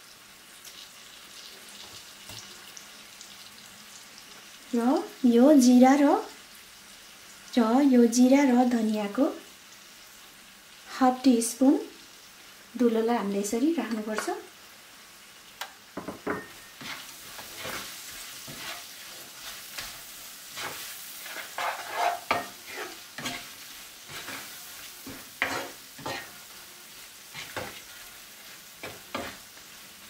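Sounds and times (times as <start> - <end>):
chillies sizzling in oil: 0.0 - 30.0
spatula scraping pan: 16.1 - 29.6.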